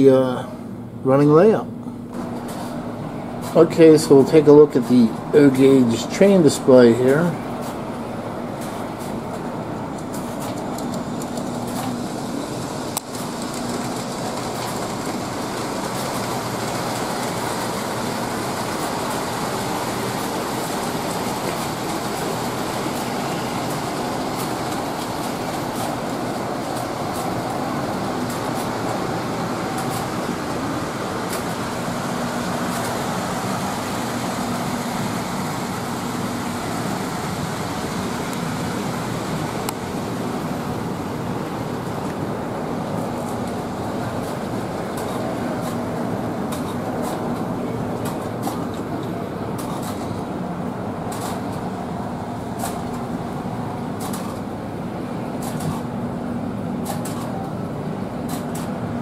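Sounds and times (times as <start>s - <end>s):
toy trains rumbling on track: 10.0s - 48.9s.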